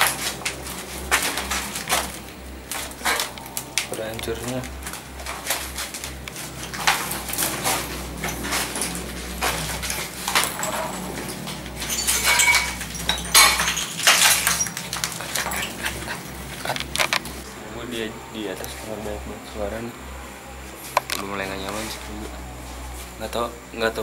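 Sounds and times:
clinks and crunches of rubble: 0.0 - 17.5
low steady hum: 0.0 - 24.0.

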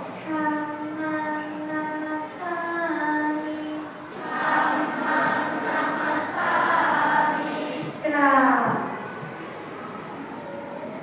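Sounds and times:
children chanting in unison: 0.4 - 8.0.

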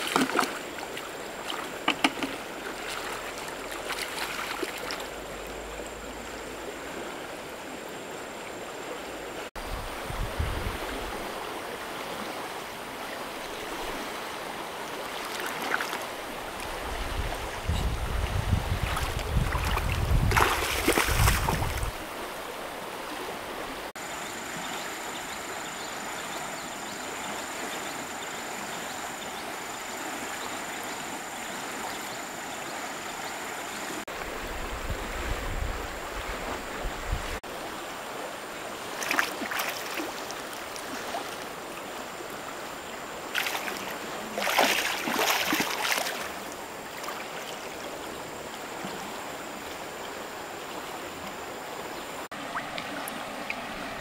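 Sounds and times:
splashing in water: 0.0 - 5.2, 15.1 - 17.0, 18.7 - 22.0, 38.9 - 41.6, 43.3 - 47.6
river flowing: 0.0 - 54.0.

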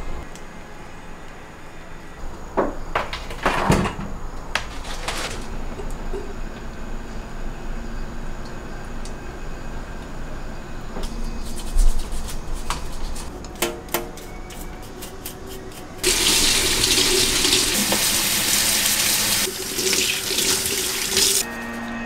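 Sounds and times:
brush scrubbing: 11.4 - 13.3
tap water running into sink: 16.0 - 21.4.

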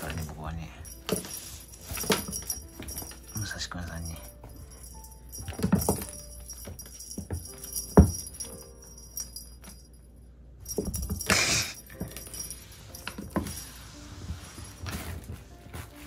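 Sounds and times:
small bell jingling: 0.0 - 15.4
scuffling rustle: 13.0 - 16.0.

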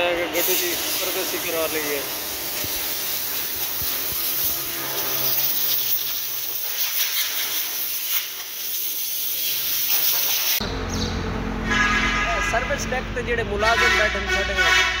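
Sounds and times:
hose spraying: 0.0 - 10.6.

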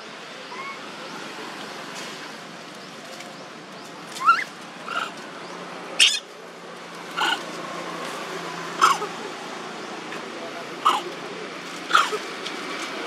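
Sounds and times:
baby monkeys squealing: 0.5 - 0.8, 4.1 - 5.2, 6.0 - 6.3, 7.2 - 7.5, 10.8 - 11.1, 11.9 - 12.2.

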